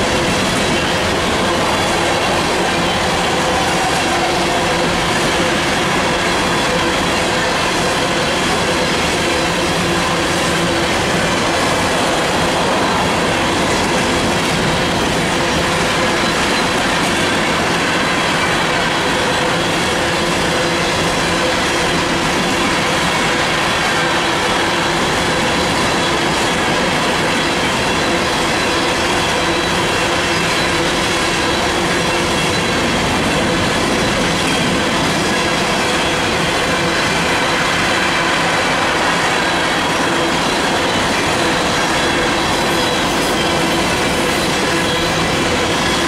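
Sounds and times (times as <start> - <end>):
freight train wheels rumbling: 0.0 - 46.0.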